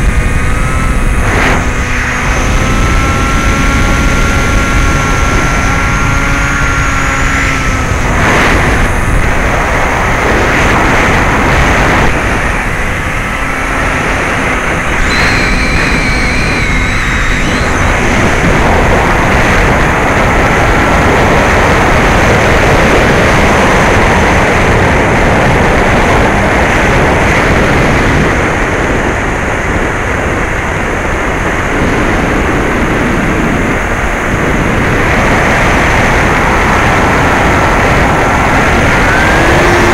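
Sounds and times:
airflow rushing: 0.0 - 28.0
electric motor and propeller whine: 0.0 - 39.9.

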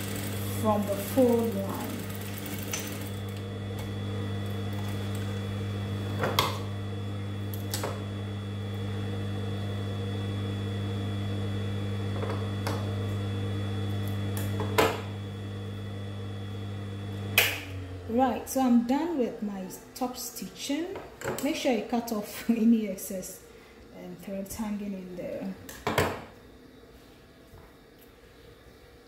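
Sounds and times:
sewing machine motor humming: 0.0 - 18.3.

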